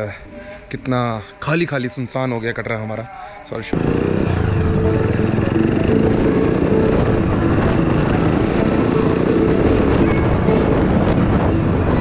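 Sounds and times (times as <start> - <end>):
motorbike engine running: 3.8 - 11.5.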